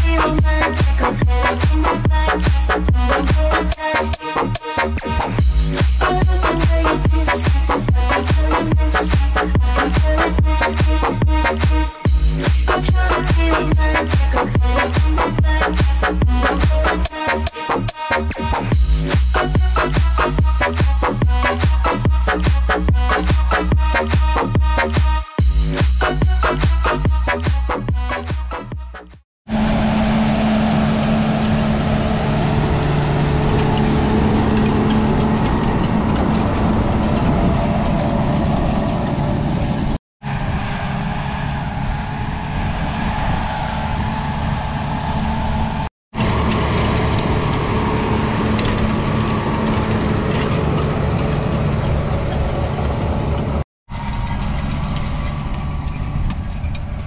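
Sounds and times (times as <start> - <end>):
tractor diesel engine under load: 0.0 - 28.3, 29.5 - 57.0.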